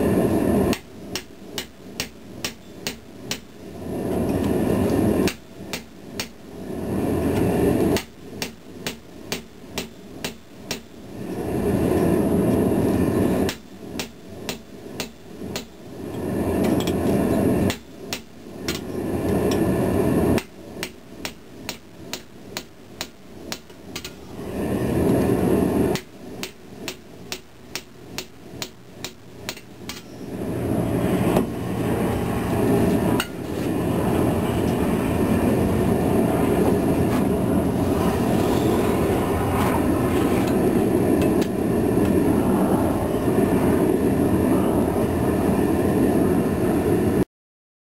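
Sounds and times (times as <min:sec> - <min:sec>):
steady rushing roar: 0:00.0 - 0:47.2
hammer striking chisel on steel: 0:08.0 - 0:10.9, 0:26.0 - 0:30.1.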